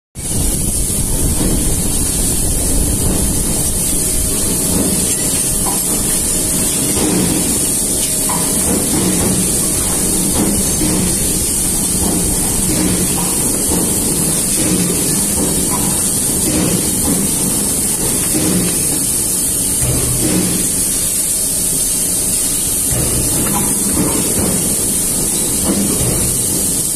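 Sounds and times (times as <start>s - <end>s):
pipe-bending machine running: 0.2s - 26.9s.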